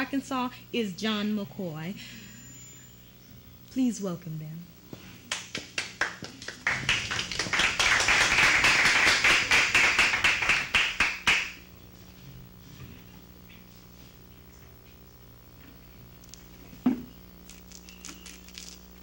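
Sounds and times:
audience applauding: 5.3s - 11.7s.

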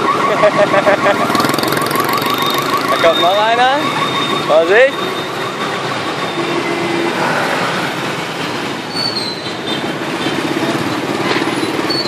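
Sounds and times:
cars passing: 0.0s - 12.0s
motorbike and scooter engines: 0.0s - 12.0s
brief high squeal: 8.9s - 9.8s.

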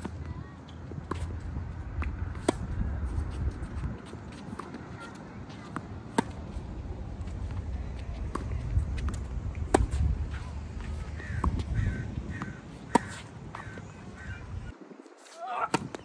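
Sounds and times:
tennis racket hitting ball: 2.0s - 6.6s, 8.2s - 11.7s, 12.3s - 13.8s.

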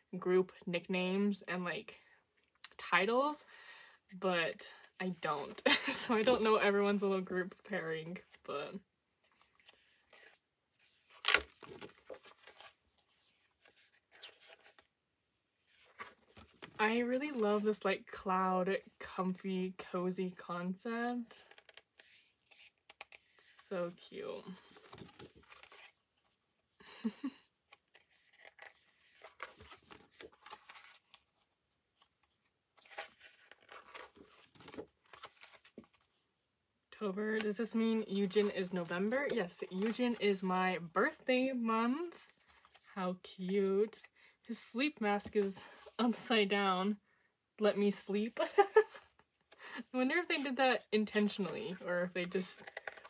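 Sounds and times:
paper rustling: 9.2s - 14.8s, 24.6s - 36.2s, 37.6s - 40.5s, 52.6s - 53.0s
paper page flipping: 9.2s - 14.9s, 24.6s - 26.4s, 27.0s - 36.1s, 39.2s - 40.2s, 52.6s - 53.0s.

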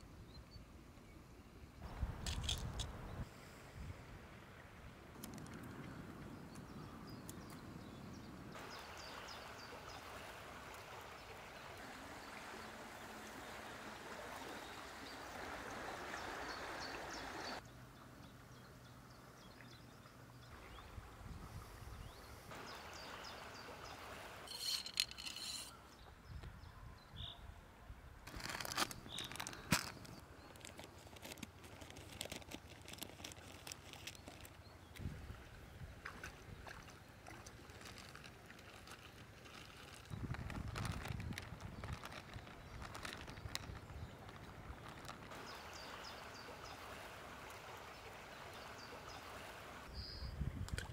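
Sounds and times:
river water flowing: 1.8s - 25.9s, 28.3s - 40.1s, 42.1s - 50.0s
foil packet crinkling: 28.3s - 34.6s, 37.7s - 45.3s.

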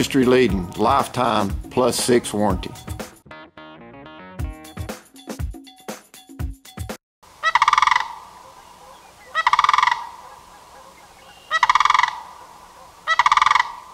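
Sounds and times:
crane calling: 7.3s - 13.9s.

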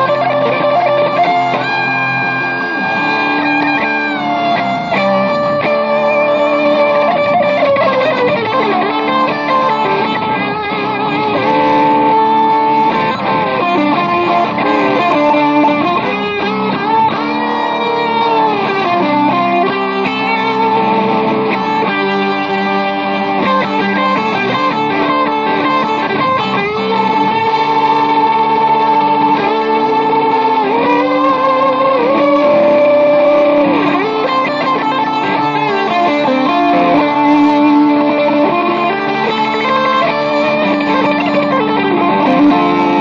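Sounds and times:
electric guitar hard rock: 0.0s - 43.0s.

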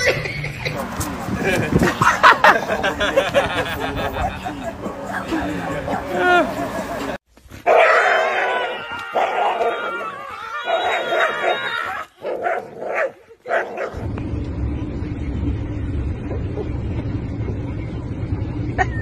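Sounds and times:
dog barking and yipping: 3.8s - 14.0s
car interior drone: 13.9s - 19.0s.

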